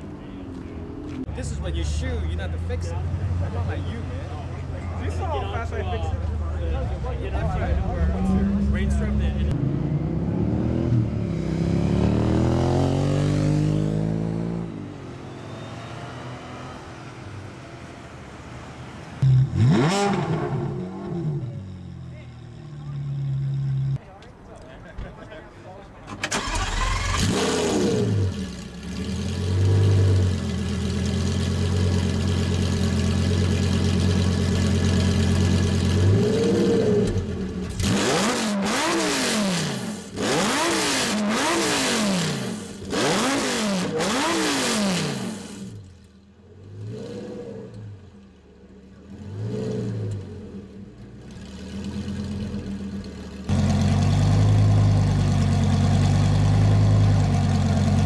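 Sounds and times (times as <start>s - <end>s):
engine revving blips: 19.2s - 22.0s, 36.0s - 45.8s
sports car engine idling: 28.3s - 36.2s, 50.4s - 58.0s.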